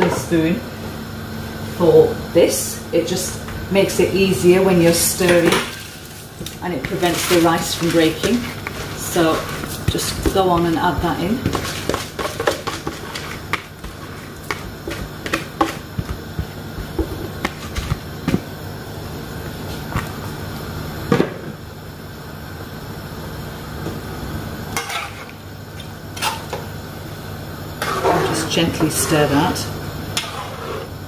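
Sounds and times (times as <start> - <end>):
steady low hum: 0.0 - 31.0
metal turner scraping in pot: 27.8 - 29.6, 30.2 - 31.0.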